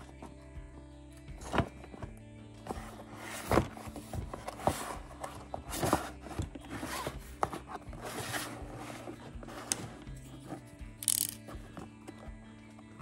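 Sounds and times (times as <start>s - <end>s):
cardboard rustling and scraping: 1.4s - 10.8s.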